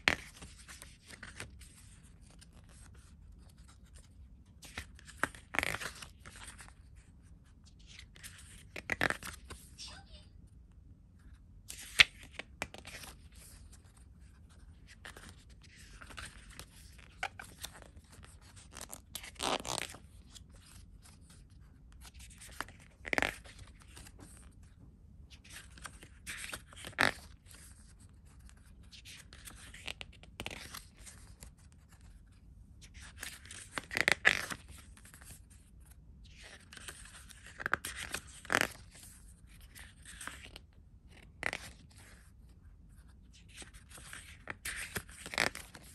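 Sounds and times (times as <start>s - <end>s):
booklet pages being turned: 0.0s - 9.8s, 11.2s - 45.9s.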